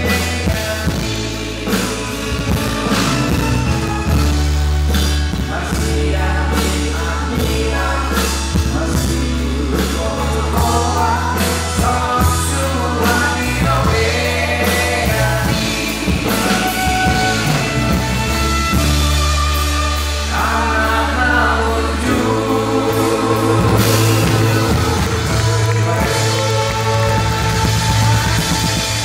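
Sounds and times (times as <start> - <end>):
drums: 0.0 - 29.0
man singing: 0.0 - 29.0
steady bass line: 0.0 - 29.0
women singing: 5.4 - 17.8, 19.9 - 28.7.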